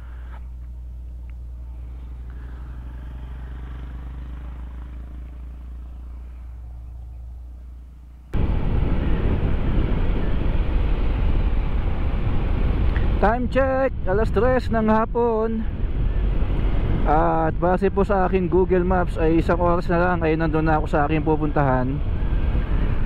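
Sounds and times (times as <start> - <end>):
wind on microphone: 8.3 - 23.0.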